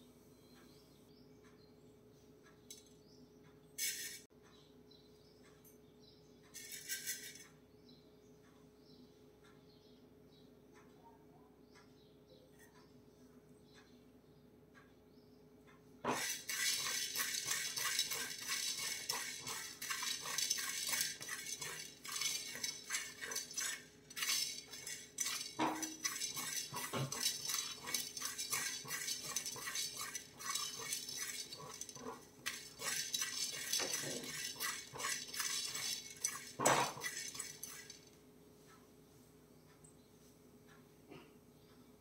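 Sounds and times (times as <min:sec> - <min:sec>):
metal spoon scraping metal pot: 0:06.6 - 0:07.4, 0:16.1 - 0:38.1.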